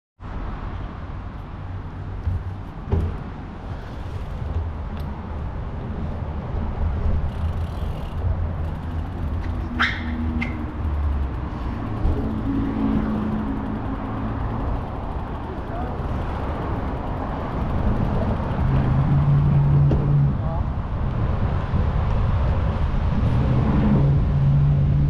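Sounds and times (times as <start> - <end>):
low rumble of traffic: 0.2 - 25.0
low engine hum: 0.3 - 25.0
high squeal: 9.4 - 10.8.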